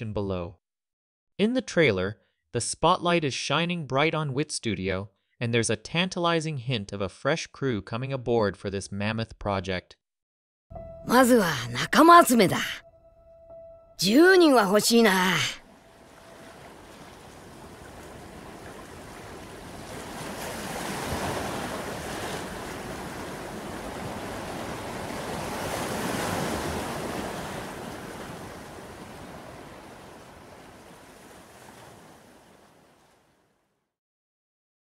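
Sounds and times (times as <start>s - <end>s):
ocean waves surging: 14.0s - 33.3s
wind: 15.1s - 33.6s.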